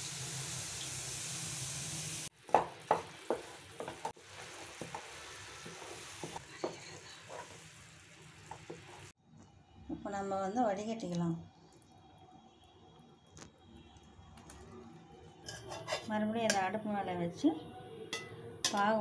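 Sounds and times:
syrup bubbling and sizzling: 0.0 - 9.2
water hissing in hot pan: 0.0 - 9.2
wooden spatula knocking on pan: 2.4 - 4.1.

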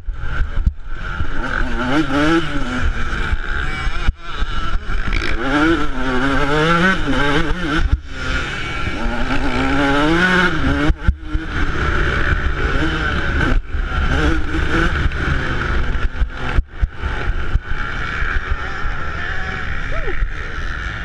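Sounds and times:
two-stroke engine revving: 0.0 - 21.0.

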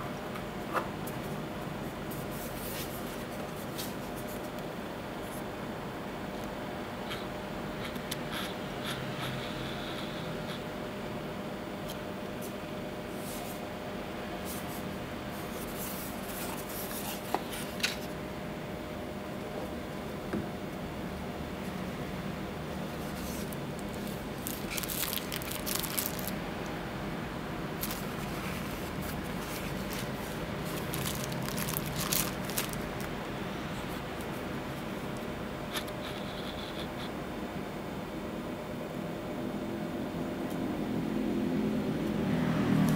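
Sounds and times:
steady background hum: 0.0 - 42.9
plastic wrapping crinkling: 23.1 - 26.5, 27.8 - 33.2.

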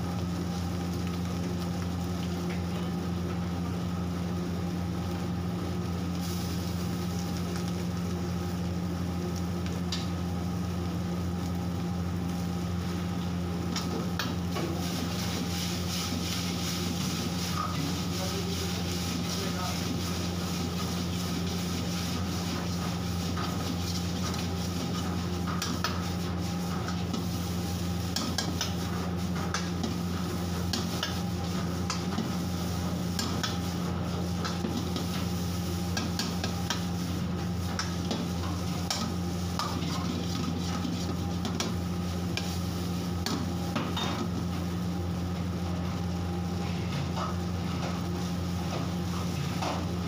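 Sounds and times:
steady low hum: 0.0 - 50.0
steel ladle scraping a wok: 38.9 - 41.5.

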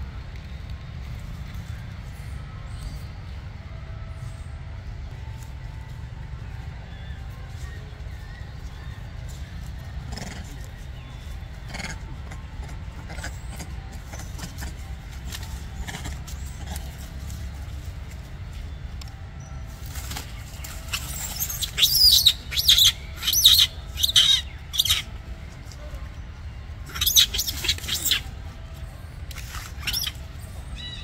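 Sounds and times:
steady low rumble: 0.0 - 31.0
monkey squealing: 20.9 - 25.1, 26.8 - 28.3, 29.4 - 31.0.

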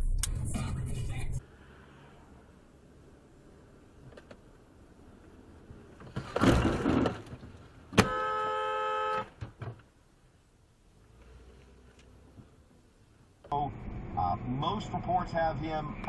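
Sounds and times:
car horn blast: 8.0 - 9.4.

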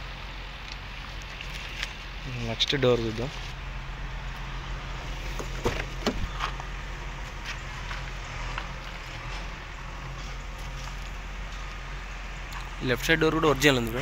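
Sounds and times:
steady low hum: 0.0 - 14.0
car door clicks and knocks: 5.3 - 6.6.

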